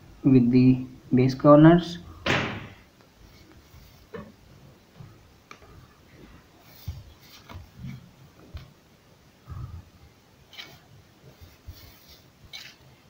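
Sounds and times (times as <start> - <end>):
pencil scratching on paper: 10.5 - 12.8.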